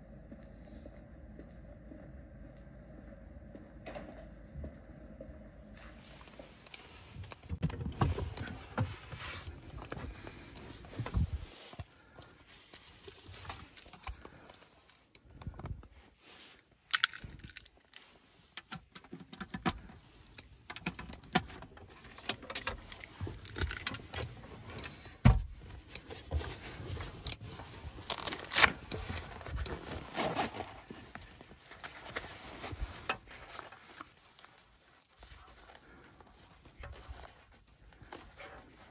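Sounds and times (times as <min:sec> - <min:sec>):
clicks scrapes and rustling: 0:06.0 - 0:38.9
keys rattling in a lock: 0:20.7 - 0:25.0.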